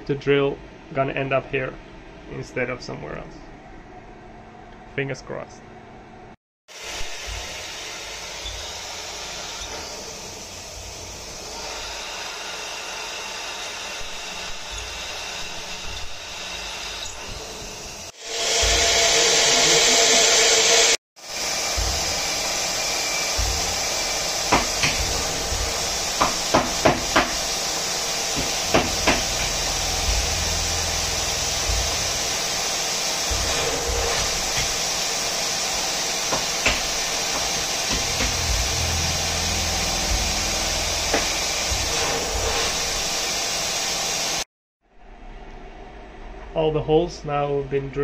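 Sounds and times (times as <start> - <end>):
mill spindle drilling hiss: 6.7 - 44.5.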